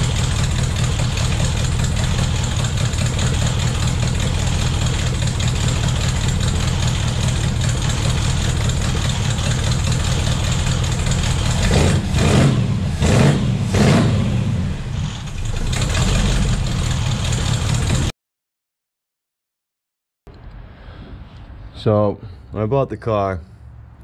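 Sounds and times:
car engine idling: 0.0s - 18.1s.

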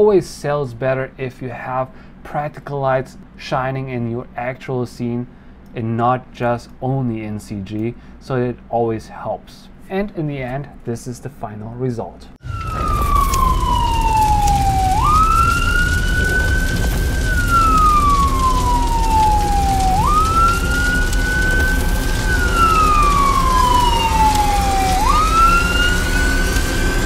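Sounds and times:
police siren wailing: 12.4s - 27.0s
steady low rumble: 12.4s - 27.0s.

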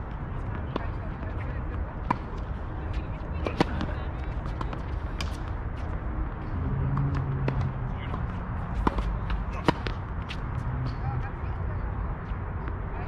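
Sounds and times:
tennis ball bouncing: 0.5s - 2.5s, 3.4s - 5.5s, 6.9s - 11.0s
tennis ball struck by rackets: 3.4s - 5.4s, 8.7s - 10.4s.

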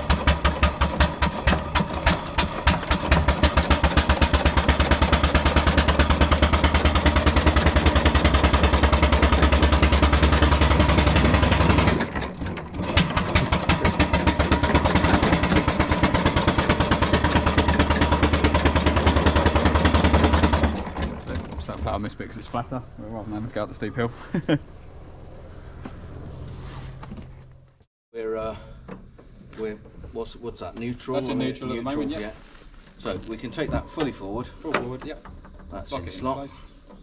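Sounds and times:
clatter of engine gearing: 0.0s - 22.6s.

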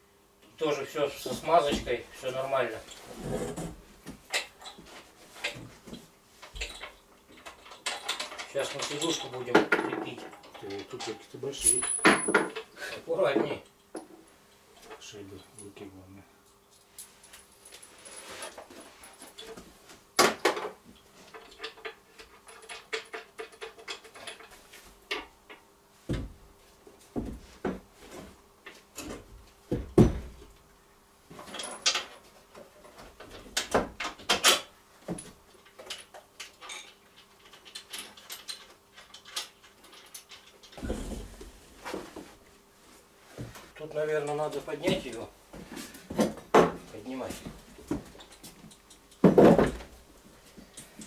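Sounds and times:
metal hardware clinking: 10.3s - 12.7s.

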